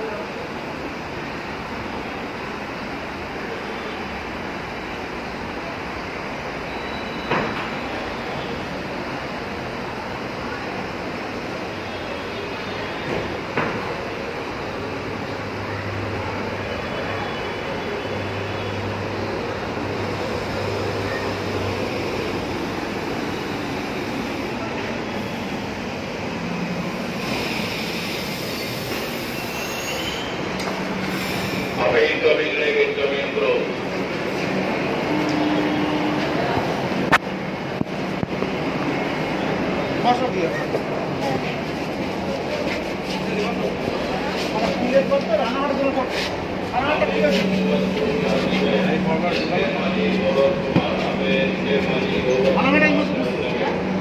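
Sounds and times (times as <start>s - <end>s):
metro train rushing rumble: 0.0s - 54.0s
faint high squeal: 6.6s - 8.6s, 28.4s - 30.6s.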